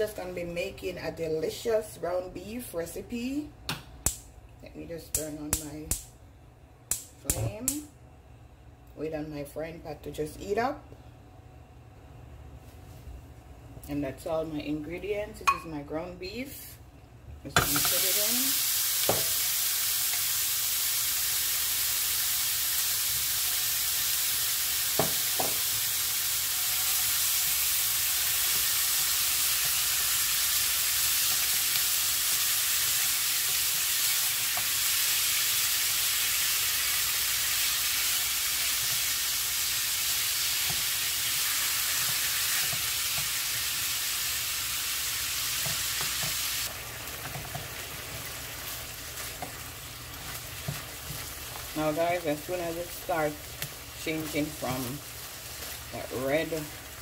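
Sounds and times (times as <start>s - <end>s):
meat sizzling in a frying pan: 17.6s - 57.0s
wooden spoon stirring: 47.1s - 51.9s.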